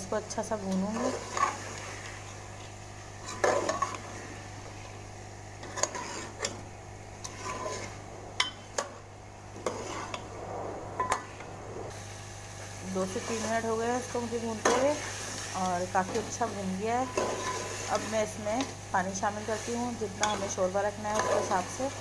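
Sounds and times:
metal spoon scraping pot: 0.8s - 4.1s, 5.6s - 6.6s, 7.2s - 8.9s, 9.6s - 10.3s, 16.0s - 18.8s, 20.1s - 21.9s.

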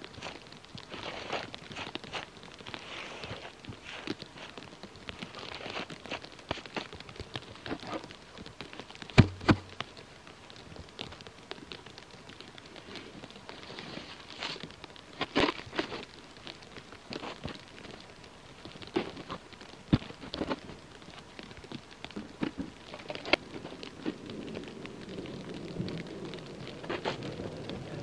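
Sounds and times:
footsteps crunching in snow: 0.1s - 4.6s, 5.2s - 7.0s
snow shovel scraping snow: 0.9s - 2.2s, 2.8s - 4.5s.

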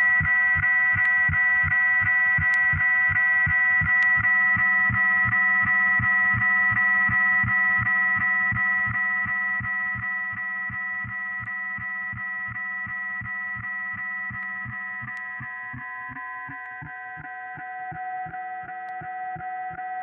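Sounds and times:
fast low pulsing beat: 0.0s - 17.0s.

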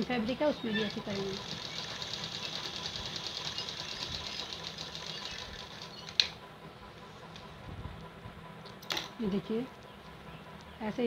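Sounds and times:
sewing machine stitching: 0.8s - 6.2s.

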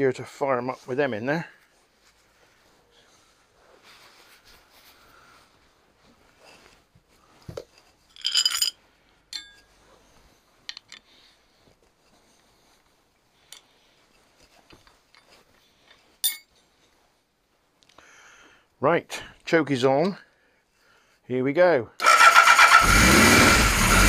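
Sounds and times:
small metallic clinks and clicks: 8.1s - 9.7s, 14.7s - 16.5s.

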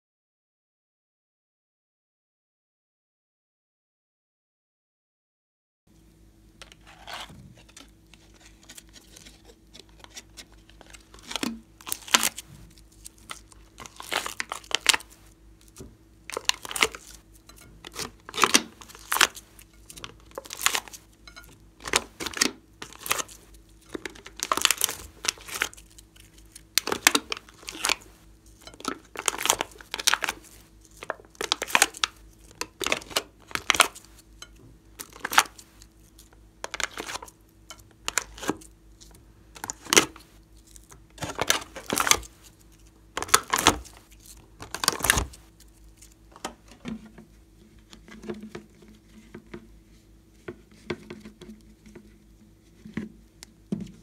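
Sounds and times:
plastic cups crinkling: 6.6s - 49.6s
sticky slime peeling: 7.6s - 21.1s, 21.8s - 34.2s, 38.0s - 46.3s.

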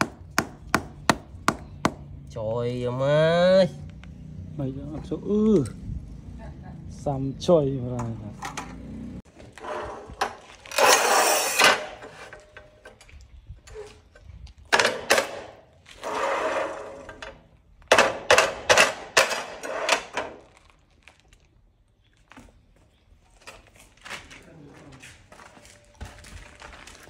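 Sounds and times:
tile cutter scraping tile: 9.6s - 12.4s, 15.9s - 17.2s.

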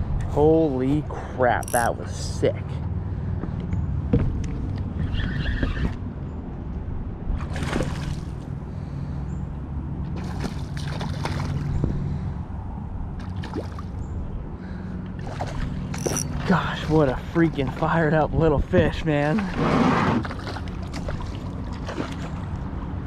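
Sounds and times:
wind rumble on microphone: 0.0s - 1.4s, 3.2s - 23.0s
water sloshing: 10.1s - 11.8s, 13.2s - 14.0s, 15.2s - 18.3s, 20.2s - 23.0s.

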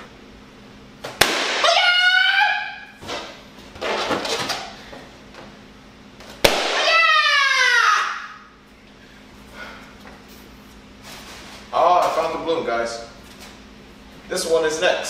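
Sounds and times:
loud wordless yell: 1.6s - 2.9s, 6.8s - 8.4s.

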